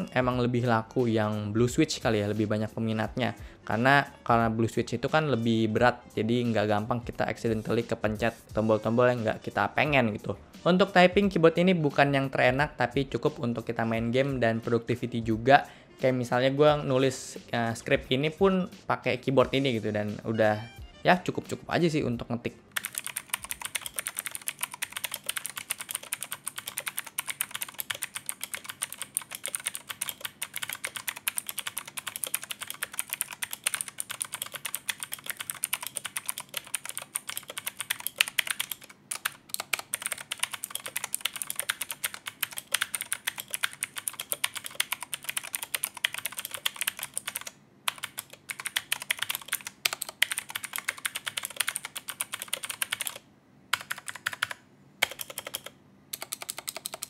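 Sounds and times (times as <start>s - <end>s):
clicky keyboard typing: 22.8s - 57.0s.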